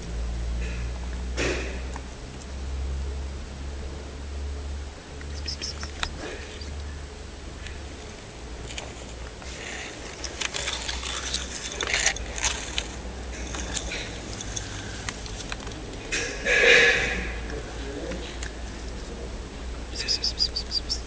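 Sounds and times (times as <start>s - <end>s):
steady low rumble: 0.0s - 21.0s
kitten chewing grass: 5.1s - 6.9s, 7.6s - 16.2s.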